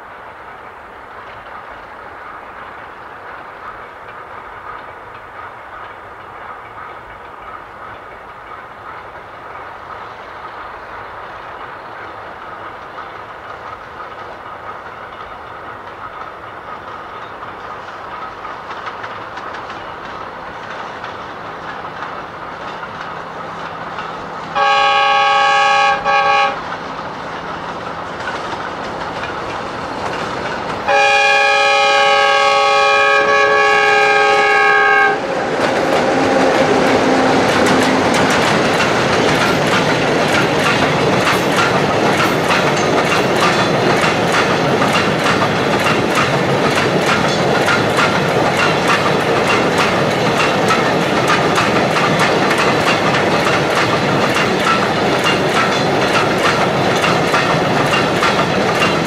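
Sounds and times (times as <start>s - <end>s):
diesel locomotive engine and rolling: 0.0s - 59.0s
train horn blasts: 24.6s - 26.6s, 30.9s - 35.3s.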